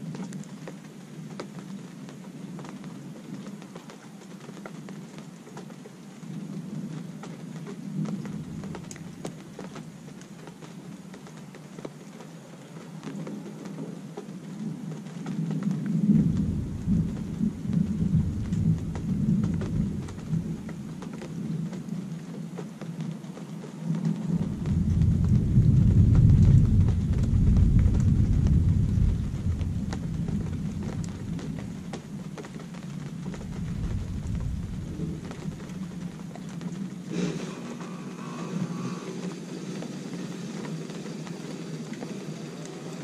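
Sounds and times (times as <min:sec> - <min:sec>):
rain pattering: 0:00.0 - 0:43.0
thunder rolling: 0:08.0 - 0:09.4, 0:15.4 - 0:21.7, 0:23.8 - 0:42.3.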